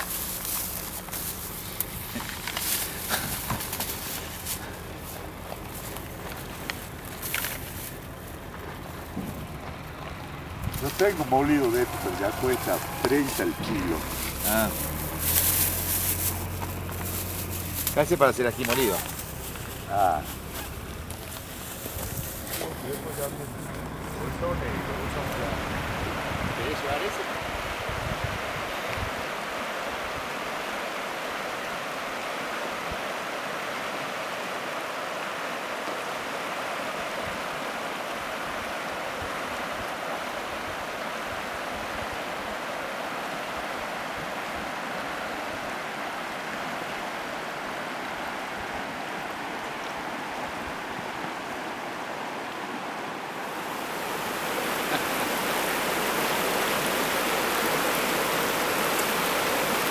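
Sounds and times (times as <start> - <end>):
river rushing over stones: 0.0 - 59.9.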